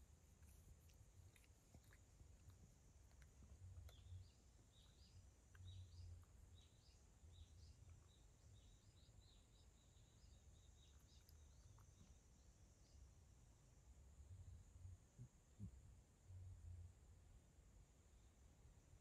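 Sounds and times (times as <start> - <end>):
small birds chirping: 0.0 - 13.7.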